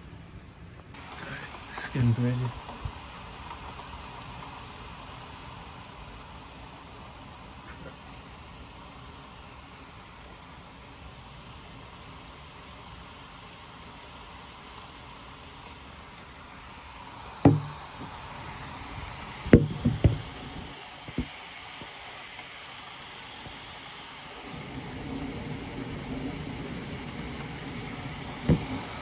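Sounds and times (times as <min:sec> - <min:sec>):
heavy rain downpour hiss: 0:00.0 - 0:29.0
sharp knocks: 0:17.4 - 0:17.8, 0:19.5 - 0:20.3.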